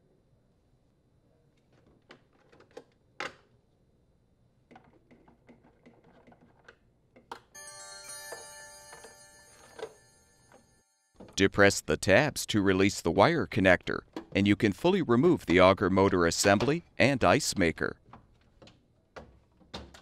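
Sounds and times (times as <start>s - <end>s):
bright electronic chime: 7.6s - 11.2s.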